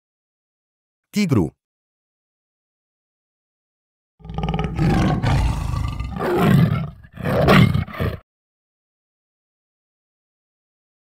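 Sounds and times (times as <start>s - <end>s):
tiger roaring: 4.2s - 8.2s.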